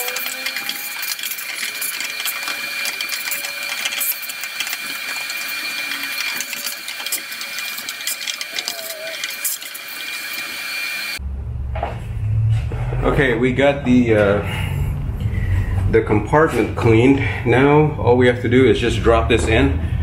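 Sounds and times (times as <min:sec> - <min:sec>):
debris rattling up hose: 0:00.0 - 0:11.2
vacuum cleaner whining: 0:00.0 - 0:11.2.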